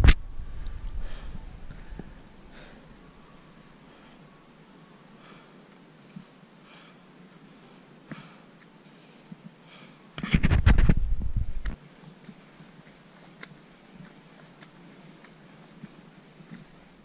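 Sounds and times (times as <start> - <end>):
wind buffeting microphone: 0.0 - 2.5, 10.3 - 11.8
faint hiss: 0.0 - 17.0.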